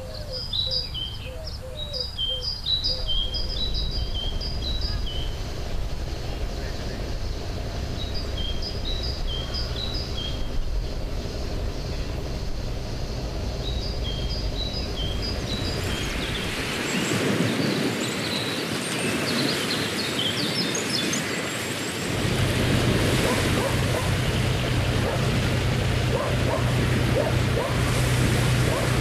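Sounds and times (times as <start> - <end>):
birds chirping: 0.0 - 29.0
boat engine droning: 0.0 - 29.0
water washing: 21.2 - 29.0.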